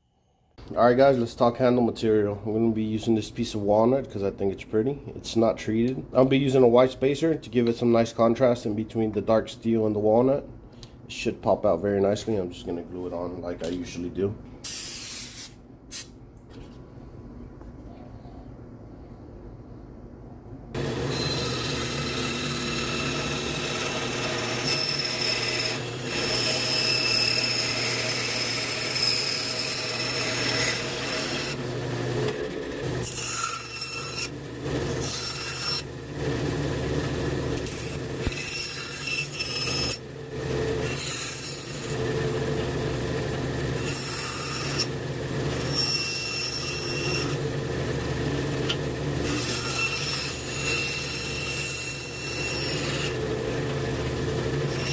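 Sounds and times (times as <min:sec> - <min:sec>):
bandsaw cutting wood: 0:20.8 - 0:54.9.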